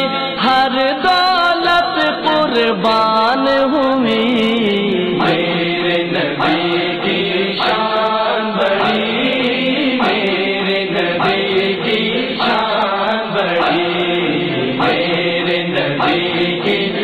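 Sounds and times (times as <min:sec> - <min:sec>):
chorus of voices chanting: 0:04.6 - 0:17.0.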